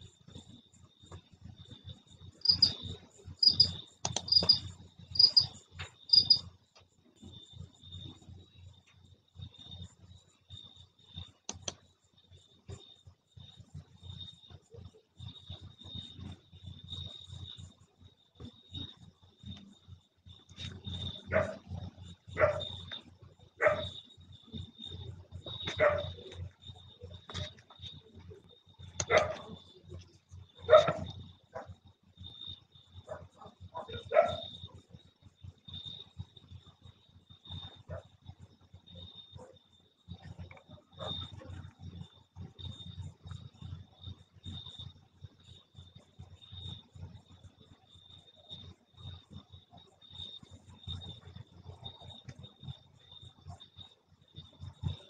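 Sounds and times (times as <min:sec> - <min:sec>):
cricket double chirp: 0:00.0 - 0:55.0
crickets trilling: 0:00.0 - 0:55.0
dog barking: 0:21.3 - 0:21.7, 0:22.4 - 0:22.7, 0:23.6 - 0:24.0, 0:25.7 - 0:26.3, 0:29.0 - 0:29.5, 0:30.7 - 0:31.8, 0:33.1 - 0:34.5, 0:41.0 - 0:41.3.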